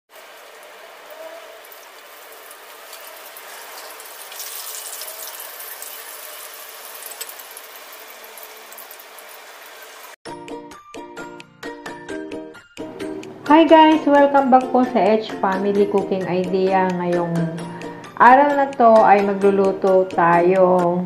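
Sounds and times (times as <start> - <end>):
tofu sizzling in hot oil: 1.6 - 10.2.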